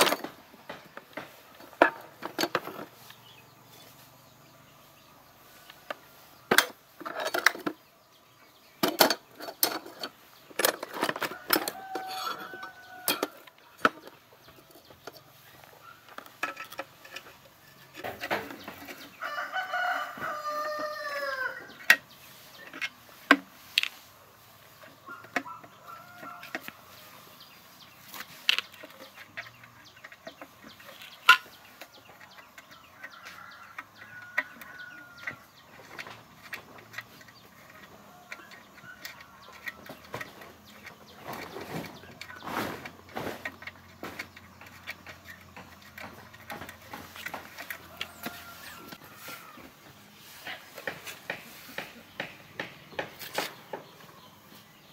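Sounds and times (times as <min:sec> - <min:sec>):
hand tools clinking on metal: 0:08.8 - 0:19.4
rooster crowing: 0:11.3 - 0:13.4, 0:19.2 - 0:21.8, 0:25.1 - 0:26.7, 0:47.8 - 0:49.7.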